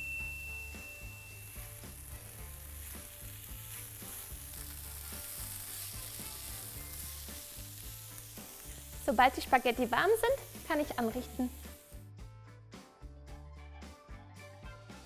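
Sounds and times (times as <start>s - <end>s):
soft background music: 0.0s - 15.0s
vegetables sizzling in frying pan: 0.9s - 12.1s.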